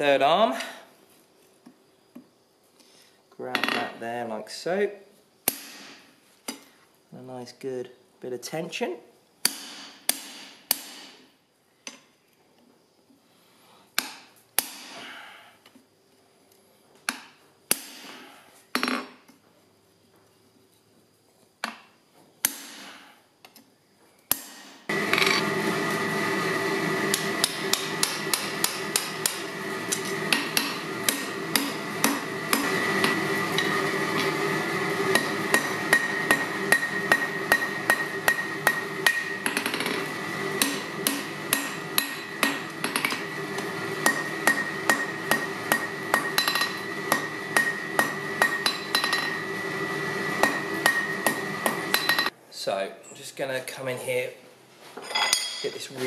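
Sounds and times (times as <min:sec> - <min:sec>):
mechanical hum with high whine: 0:00.0 - 0:56.0
hammer striking chisel on anvil: 0:09.4 - 0:11.2, 0:27.1 - 0:34.3, 0:35.1 - 0:40.0, 0:40.6 - 0:49.4, 0:50.4 - 0:52.3.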